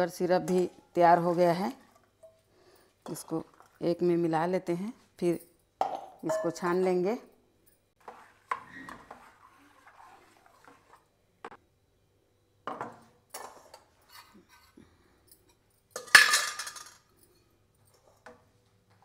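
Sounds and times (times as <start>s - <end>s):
steel spoon scraping a bowl: 8.0s - 11.1s, 14.0s - 14.8s.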